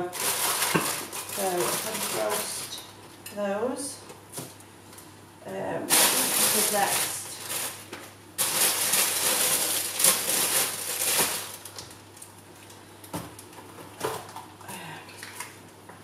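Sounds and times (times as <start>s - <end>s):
plastic packaging rustling: 0.0s - 2.9s, 5.9s - 14.6s.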